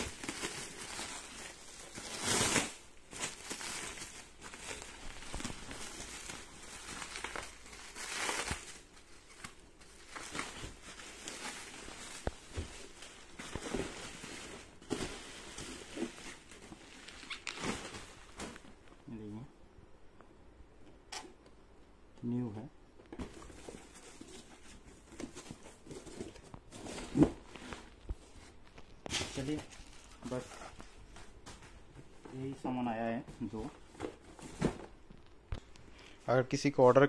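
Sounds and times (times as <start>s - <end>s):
bubble wrap crinkling: 0.0s - 18.8s, 23.5s - 31.9s.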